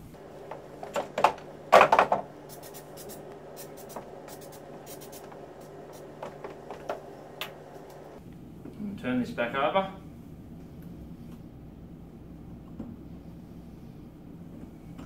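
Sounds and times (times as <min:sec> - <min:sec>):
aerosol spray hisses: 0:02.4 - 0:06.2.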